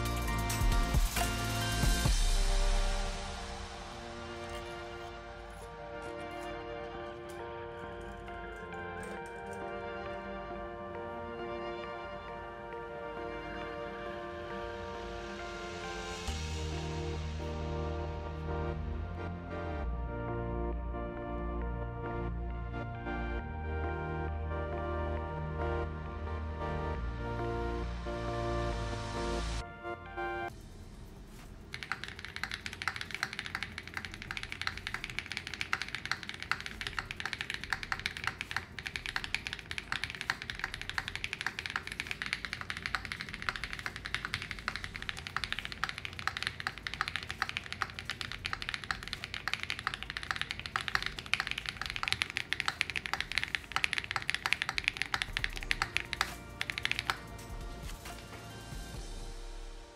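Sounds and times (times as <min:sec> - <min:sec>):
mechanical keyboard typing: 0:31.7 - 0:58.4.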